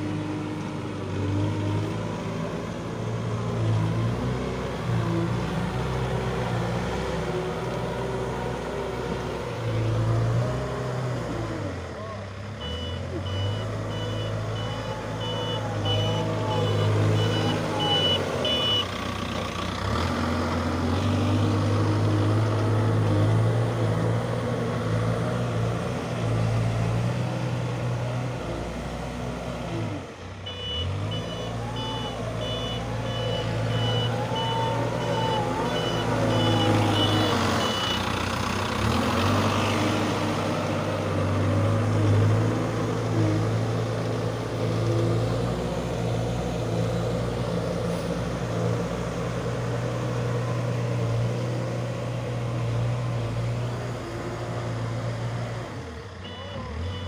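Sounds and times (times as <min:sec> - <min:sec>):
diesel engine revving: 0:00.0 - 0:57.0
reversing alarm beeping: 0:12.6 - 0:18.9, 0:30.5 - 0:38.1, 0:56.2 - 0:57.0.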